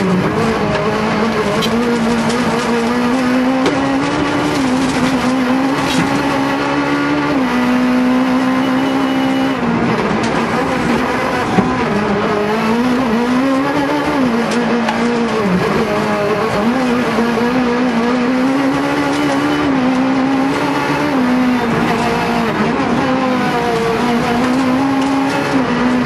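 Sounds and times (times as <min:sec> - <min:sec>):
car engine at high revs: 0:00.0 - 0:26.0
gravel road noise: 0:00.0 - 0:26.0.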